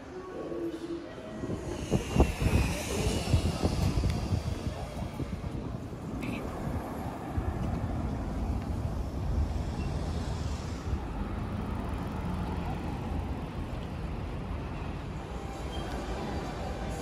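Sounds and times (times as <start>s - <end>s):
low rumble of cars: 0.0s - 17.0s
high hiss: 1.4s - 5.1s.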